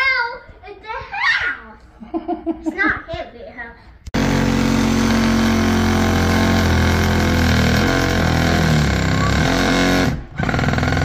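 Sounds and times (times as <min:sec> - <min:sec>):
oscillating tool cutting drywall: 0:04.2 - 0:11.0.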